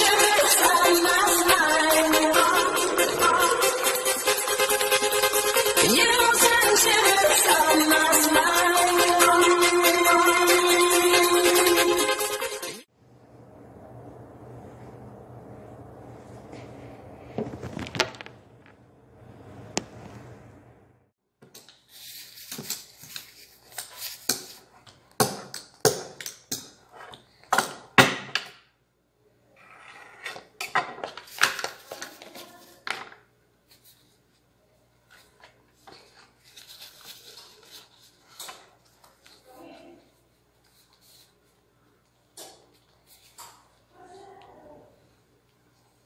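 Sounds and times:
faint low hum: 13.0s - 21.1s
plastic crinkling and rustling: 17.3s - 18.8s.

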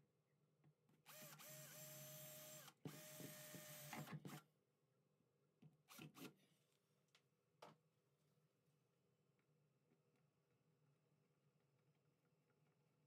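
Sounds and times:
cordless drill boring: 1.1s - 4.4s.

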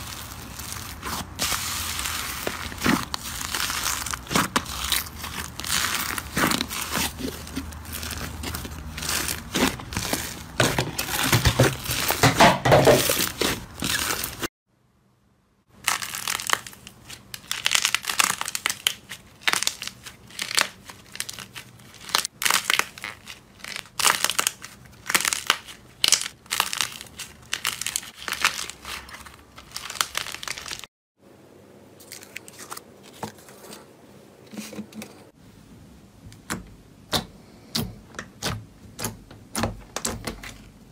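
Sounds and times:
slime crackling and popping: 0.0s - 14.5s, 15.8s - 30.9s.

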